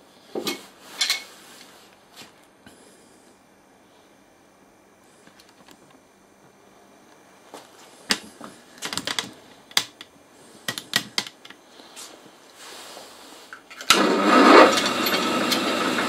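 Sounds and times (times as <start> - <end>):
drill press whirring: 13.6 - 16.0.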